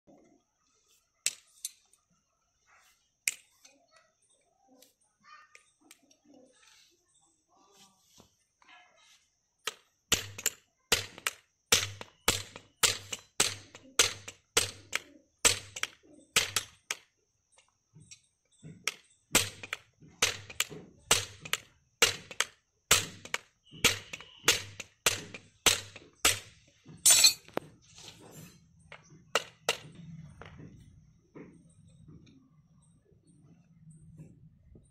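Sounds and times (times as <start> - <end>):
hammer striking nails into metal: 9.7 - 17.0, 18.8 - 27.5.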